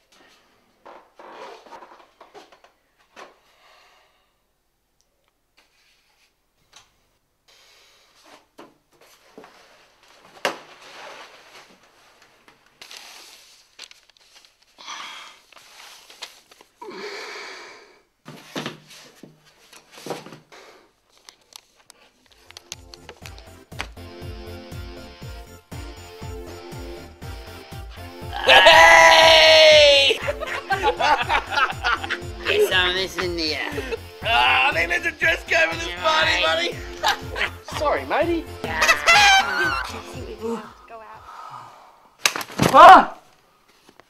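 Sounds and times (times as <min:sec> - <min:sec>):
rustling and shuffling: 0:00.0 - 0:03.5, 0:05.5 - 0:07.2, 0:08.0 - 0:14.8, 0:15.4 - 0:16.8, 0:18.2 - 0:23.9, 0:42.4 - 0:44.0
breathy wheezing exhalations: 0:16.8 - 0:18.1.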